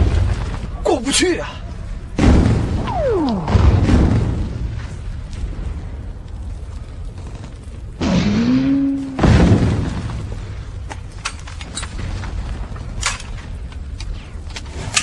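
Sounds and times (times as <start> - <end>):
heavy explosion: 2.2 - 6.2
blast with rising pitched tone: 2.8 - 4.8.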